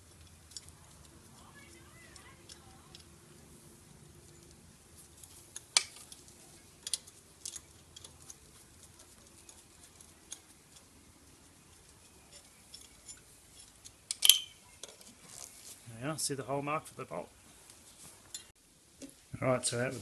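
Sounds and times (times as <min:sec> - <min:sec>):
metallic clicks of handled parts: 0:00.0 - 0:03.2, 0:04.2 - 0:10.9, 0:11.7 - 0:15.2.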